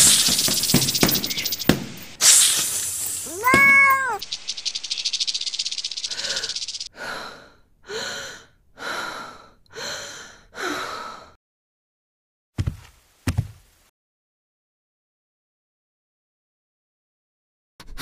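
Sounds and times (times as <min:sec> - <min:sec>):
cat rattling hiss: 0:00.0 - 0:06.9
cat meowing: 0:03.2 - 0:04.2.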